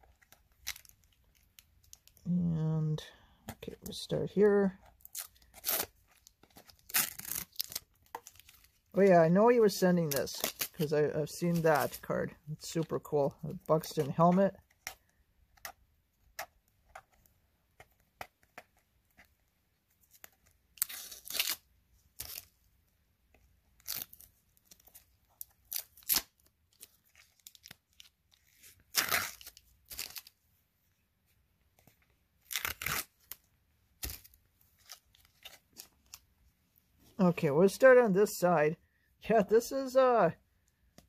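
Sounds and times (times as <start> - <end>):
tape being ripped off plastic: 5.0 - 6.0, 6.6 - 8.6, 20.8 - 22.5, 23.8 - 24.3, 25.6 - 27.8, 28.7 - 30.3, 32.4 - 33.4, 34.0 - 36.2.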